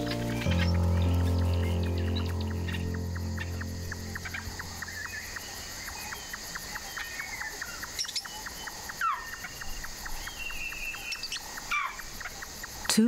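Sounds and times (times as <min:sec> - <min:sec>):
even ticking call: 0:00.0 - 0:05.7
birds chirping and calling: 0:00.0 - 0:13.0
insect chorus: 0:00.0 - 0:13.0.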